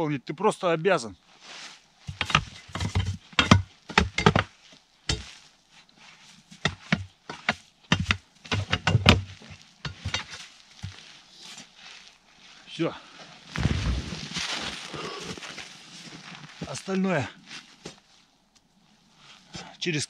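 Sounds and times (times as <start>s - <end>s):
knocks and thuds on snowmobile track: 13.6s - 14.9s.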